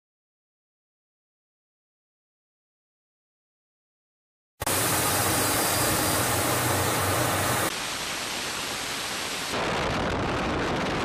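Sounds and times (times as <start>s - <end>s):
aircraft engine drone: 4.6s - 9.5s
aircraft airflow rushing: 4.7s - 7.7s.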